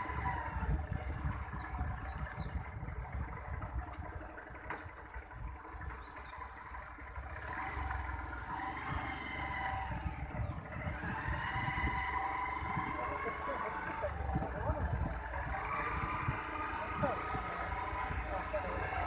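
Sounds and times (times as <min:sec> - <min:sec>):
wind rumbling on microphone: 0:00.0 - 0:18.2
motorbike engine running: 0:00.0 - 0:19.0
high bird chirps: 0:05.6 - 0:06.7.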